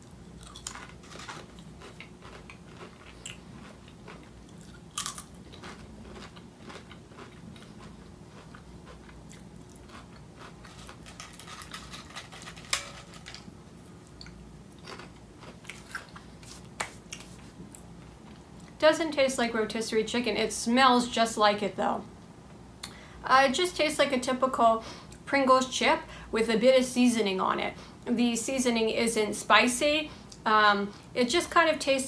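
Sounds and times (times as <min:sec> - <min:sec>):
person chewing potato crisps: 0:00.0 - 0:18.8.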